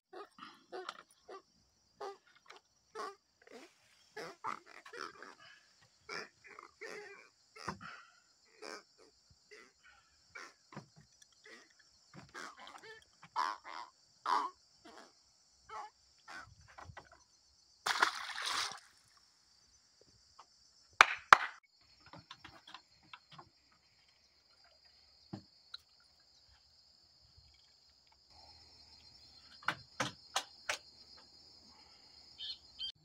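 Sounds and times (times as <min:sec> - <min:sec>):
insect chorus: 0:00.1 - 0:33.0
water splash: 0:17.8 - 0:19.0.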